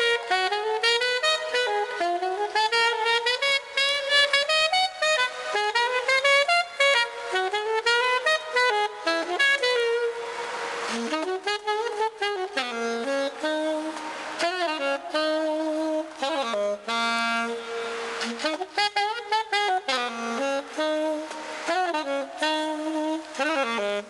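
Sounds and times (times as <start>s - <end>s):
alto saxophone melody: 0.0s - 24.0s.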